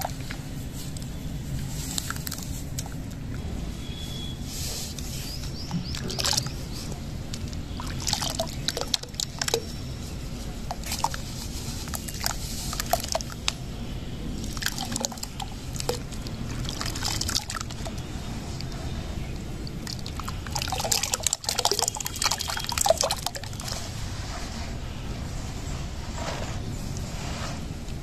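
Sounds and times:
water splashing and sloshing: 0:04.7 - 0:24.9.

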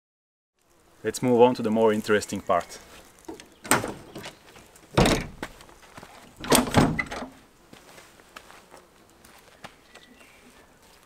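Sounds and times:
canopy door clunks and rattles: 0:03.6 - 0:05.4, 0:06.4 - 0:07.3
tailgate thunk: 0:05.0 - 0:05.4, 0:06.4 - 0:07.3.

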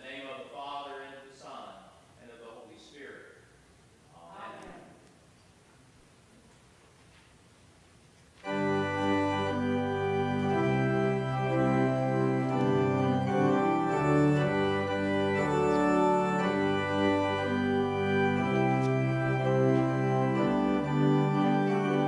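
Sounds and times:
church organ playing a hymn: 0:08.4 - 0:22.0.

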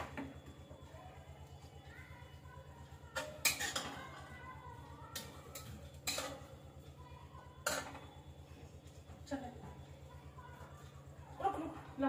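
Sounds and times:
metal spoon clinking on pans: 0:03.0 - 0:04.4, 0:05.0 - 0:06.9, 0:07.6 - 0:08.2.

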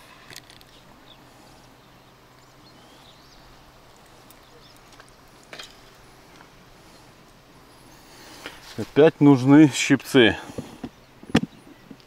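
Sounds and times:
faint bird chirps: 0:00.9 - 0:06.0.

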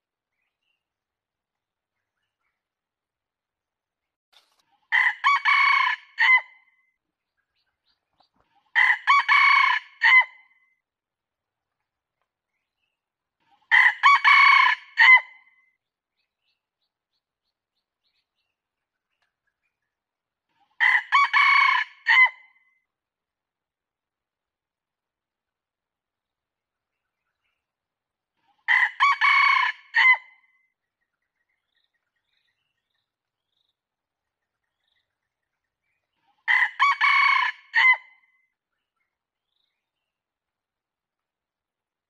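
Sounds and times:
rooster crowing: 0:05.0 - 0:06.4, 0:08.8 - 0:10.3, 0:13.7 - 0:15.2, 0:20.8 - 0:22.4, 0:28.7 - 0:30.2, 0:36.5 - 0:38.0.

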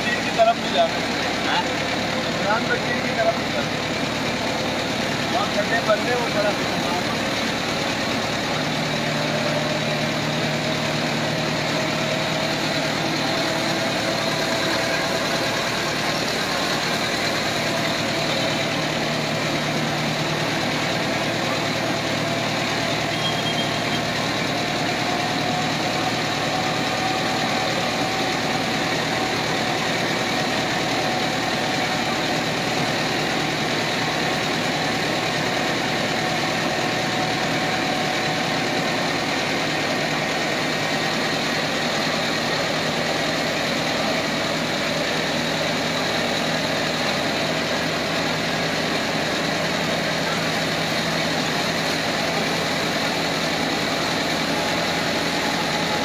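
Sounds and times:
small engine running: 0:00.0 - 0:56.0.

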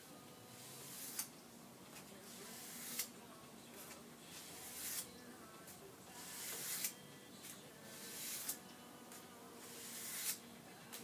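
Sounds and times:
knife scraping on sandpaper: 0:08.0 - 0:08.6, 0:09.6 - 0:10.4.

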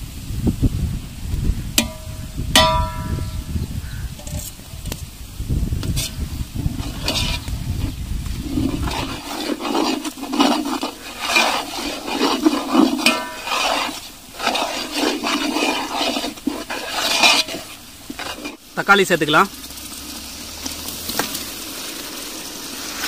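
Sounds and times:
hot oil sizzling: 0:00.0 - 0:23.0
ladle scraping pot: 0:01.8 - 0:03.5, 0:04.2 - 0:05.0, 0:05.8 - 0:18.9.

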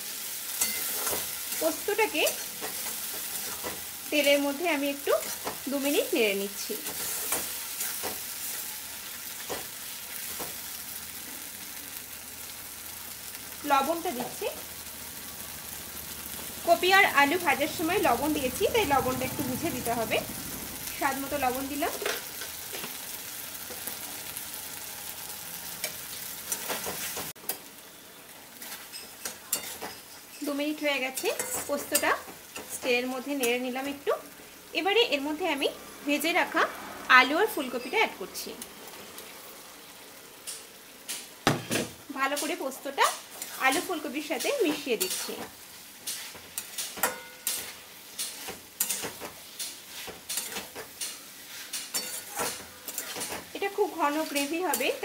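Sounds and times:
paste sizzling in hot oil: 0:00.0 - 0:55.0
spatula scraping a pan: 0:00.2 - 0:03.9, 0:06.8 - 0:10.8, 0:43.3 - 0:55.0
spatula scraping metal pan: 0:46.0 - 0:53.5.

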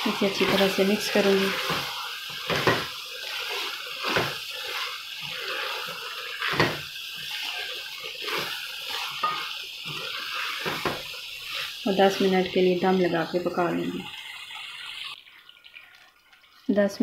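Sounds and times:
wooden spoon scraping metal pot: 0:00.0 - 0:12.6
frying hiss: 0:00.0 - 0:17.0.

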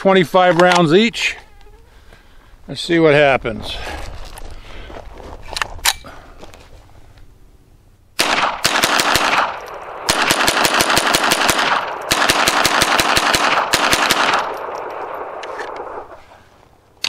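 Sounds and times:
rifle shots with echo: 0:08.2 - 0:16.2.

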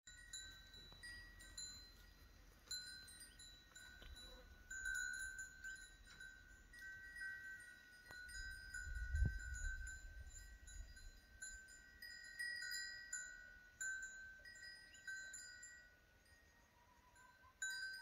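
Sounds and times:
small metal bell ringing: 0:00.1 - 0:18.0
wind rumbling on microphone: 0:08.1 - 0:11.7.

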